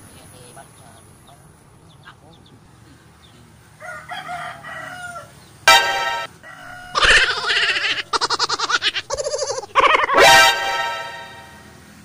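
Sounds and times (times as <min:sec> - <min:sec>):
rooster crowing: 0:03.8 - 0:10.5.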